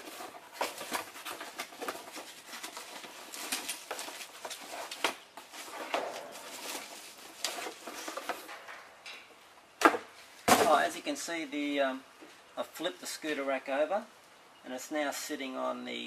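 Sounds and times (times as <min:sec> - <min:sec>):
cardboard packaging rustling: 0:00.0 - 0:08.8.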